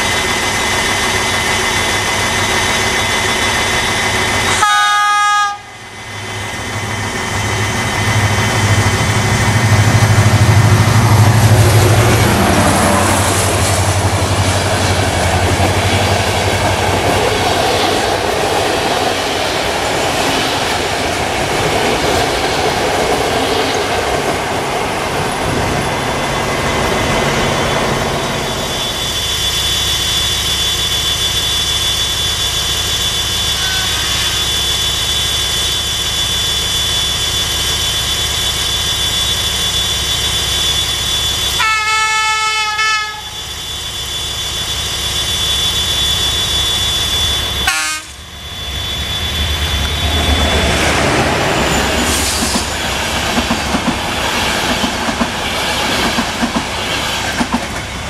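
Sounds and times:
diesel locomotive engine passing: 0:00.0 - 0:58.0
train coaches rumbling past: 0:00.0 - 0:58.0
locomotive horn blast: 0:04.5 - 0:05.9, 0:33.6 - 0:34.5, 0:41.6 - 0:43.4, 0:47.6 - 0:48.3.

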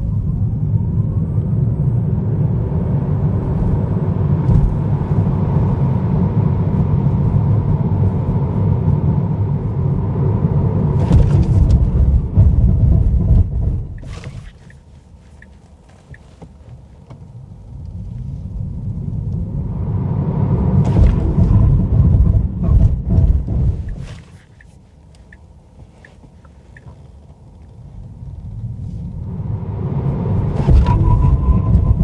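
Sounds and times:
road and tyre rumble in car: 0:00.0 - 0:32.0
hazard light indicator ticking: 0:24.6 - 0:26.9.

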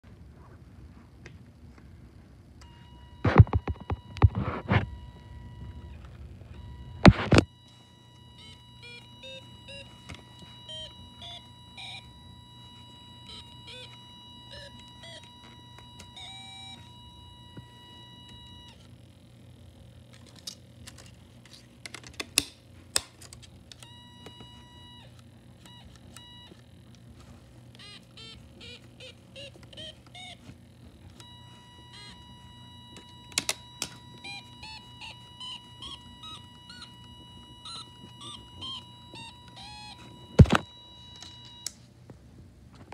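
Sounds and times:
buzzy electronic keyboard beeps: 0:02.7 - 0:18.8, 0:27.8 - 0:30.5, 0:31.2 - 0:41.6.

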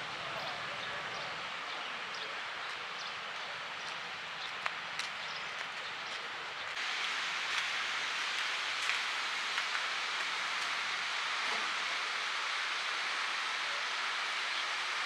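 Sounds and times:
wind hiss: 0:06.8 - 0:15.0.

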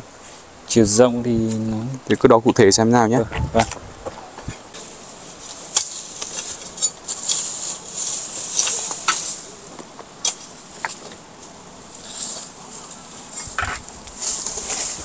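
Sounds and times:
insects buzzing: 0:00.0 - 0:15.0
footsteps crunching on stone: 0:03.3 - 0:11.5.

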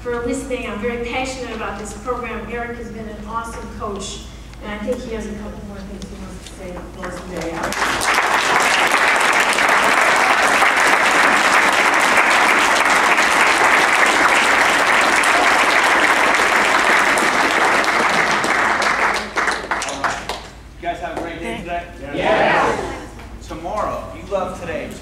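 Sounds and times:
audience applauding: 0:07.4 - 0:20.6.

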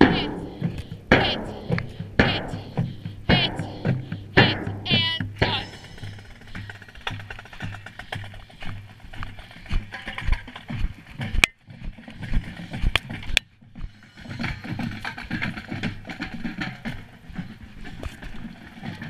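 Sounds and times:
sharp knocks: 0:00.0 - 0:11.6.

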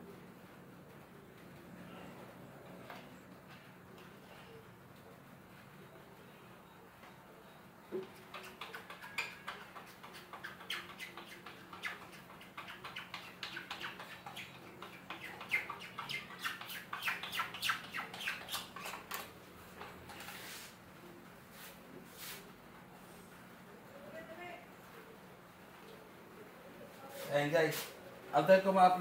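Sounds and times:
applicator squeaking on screen mesh: 0:08.0 - 0:19.3.

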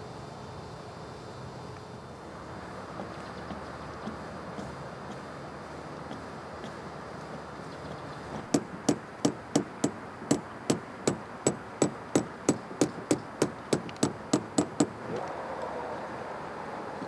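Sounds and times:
hammer driving nails: 0:08.4 - 0:15.0.

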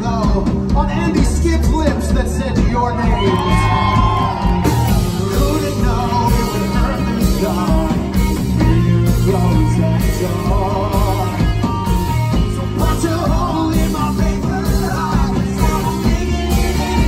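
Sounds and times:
live rock band playing: 0:00.0 - 0:17.0
man singing lead vocal: 0:00.0 - 0:17.0.

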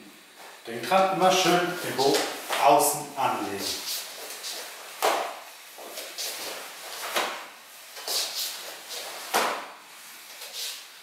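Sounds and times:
staff swishing through air: 0:03.6 - 0:09.7
hands sliding along staff: 0:05.8 - 0:09.6
bare feet thudding on wooden floor: 0:09.2 - 0:09.7.

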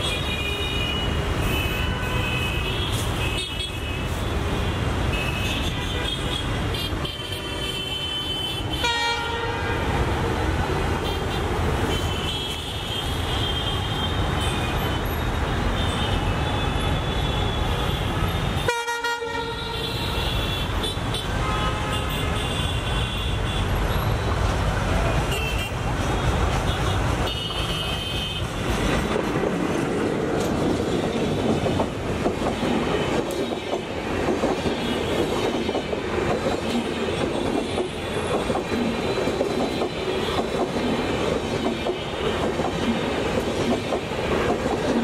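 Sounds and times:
train horn: 0:05.2 - 0:09.9, 0:18.6 - 0:22.8.

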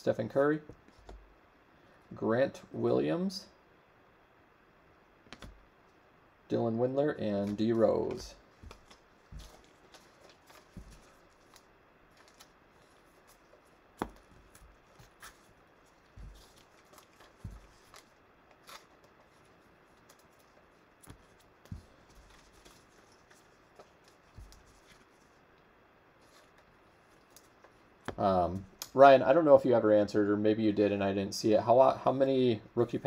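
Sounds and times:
foil card pack rustling: 0:07.4 - 0:25.4.

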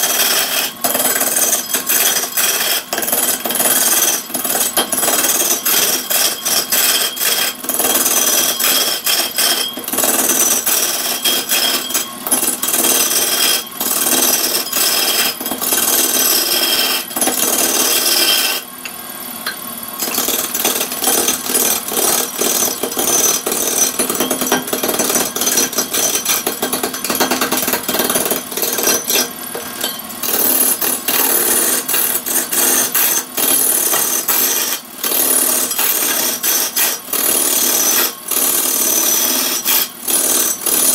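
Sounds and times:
wood lathe tool scraping log: 0:05.7 - 0:09.6, 0:12.9 - 0:18.6.

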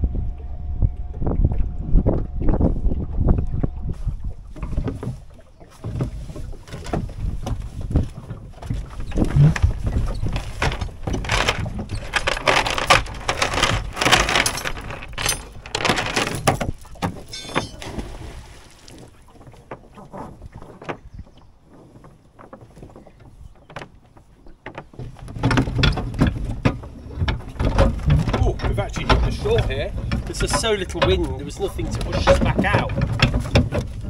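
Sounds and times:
gear knocking and clunking: 0:05.8 - 0:17.8, 0:24.8 - 0:34.0.

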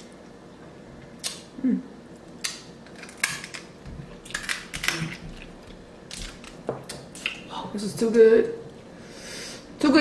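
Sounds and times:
person humming: 0:01.6 - 0:01.9
crab shells cracking: 0:02.2 - 0:07.5.

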